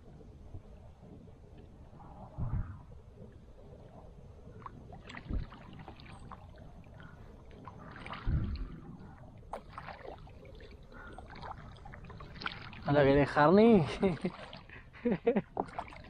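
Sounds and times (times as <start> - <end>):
paddle splashing in water: 4.6 - 6.7, 7.6 - 8.8, 9.5 - 16.0.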